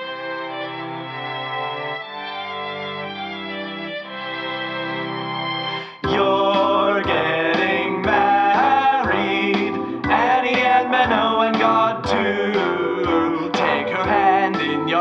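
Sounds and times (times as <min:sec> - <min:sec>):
held chord: 0:00.0 - 0:15.0
backing music with steady beat: 0:05.8 - 0:15.0
men singing: 0:05.9 - 0:15.0.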